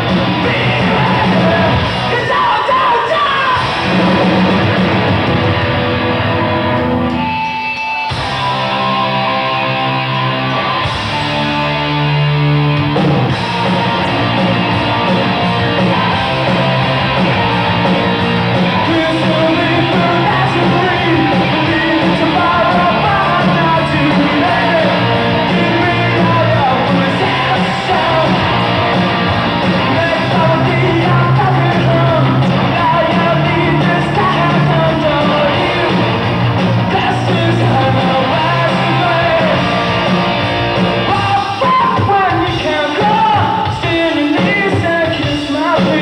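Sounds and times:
person singing: 0:00.0 - 0:03.8, 0:18.7 - 0:29.0, 0:29.6 - 0:40.1, 0:41.0 - 0:46.0
rock band playing loud: 0:00.0 - 0:46.0.

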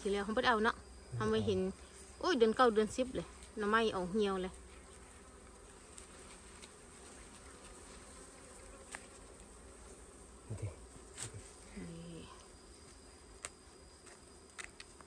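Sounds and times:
honeybees buzzing faintly: 0:00.0 - 0:15.0
short low vocal sound: 0:01.1 - 0:01.6.

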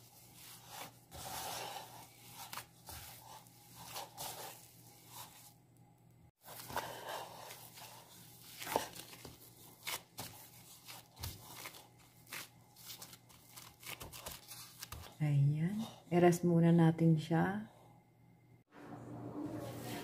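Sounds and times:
dough scraping against bowl: 0:00.0 - 0:05.6, 0:06.4 - 0:13.1
plastic gloves crinkling: 0:00.0 - 0:05.6, 0:06.4 - 0:15.2.

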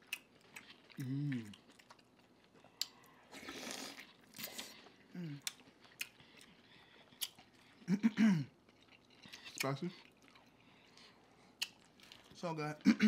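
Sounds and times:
wet chewing and crunching: 0:00.0 - 0:12.9
mouth clicks and smacks: 0:11.6 - 0:12.0.

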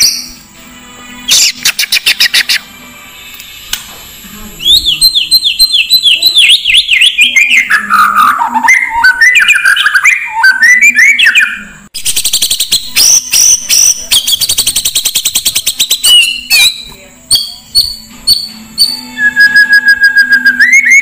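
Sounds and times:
songbird whistled notes: 0:00.0 - 0:00.5, 0:04.6 - 0:21.0
bird calls: 0:04.6 - 0:21.0.

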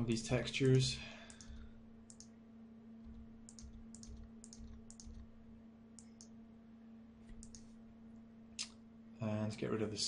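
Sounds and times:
faint low hum: 0:00.0 - 0:10.0
computer mouse clicking: 0:00.6 - 0:02.3, 0:03.0 - 0:05.4, 0:07.3 - 0:07.7.

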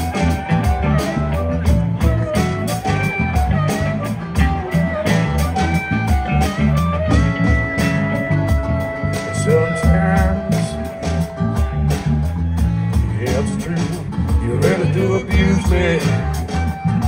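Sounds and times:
bending lead guitar notes: 0:00.0 - 0:17.0
rock band playing: 0:00.0 - 0:17.0.

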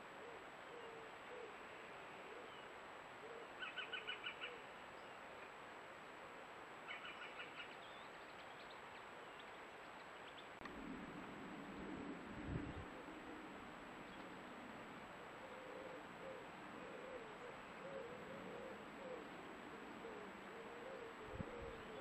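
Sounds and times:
steady background hiss: 0:00.0 - 0:22.0
woodpecker calling: 0:03.2 - 0:04.6, 0:06.8 - 0:09.6.

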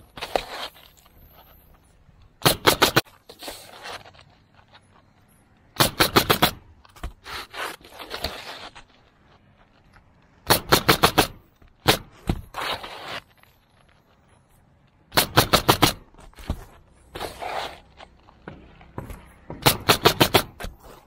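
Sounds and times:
shingles scraping: 0:00.0 - 0:21.0
roofing nailer firing: 0:02.4 - 0:03.0, 0:05.8 - 0:06.7, 0:10.4 - 0:12.2, 0:15.1 - 0:16.1, 0:19.5 - 0:20.7.

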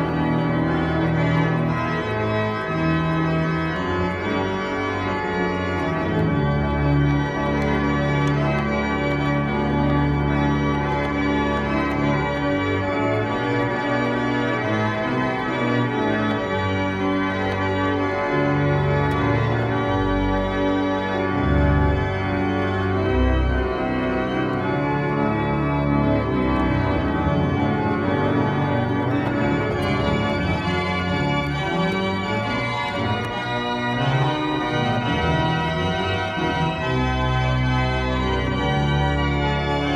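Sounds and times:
church organ chords: 0:00.0 - 0:39.9
low organ bass notes: 0:00.0 - 0:39.9.

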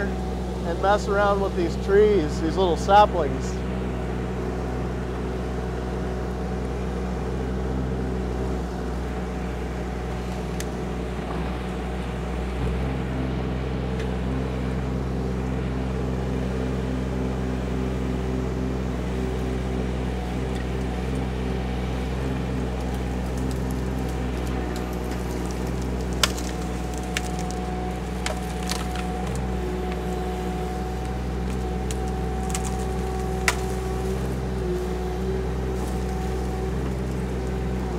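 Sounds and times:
excavator diesel engine running: 0:00.0 - 0:37.9
sharp cracks of saplings: 0:10.2 - 0:10.8, 0:22.1 - 0:37.9.

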